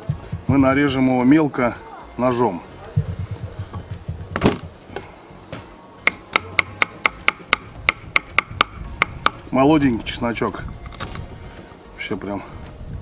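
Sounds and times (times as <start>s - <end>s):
knife chopping on wooden board: 3.0s - 4.7s, 6.1s - 9.4s.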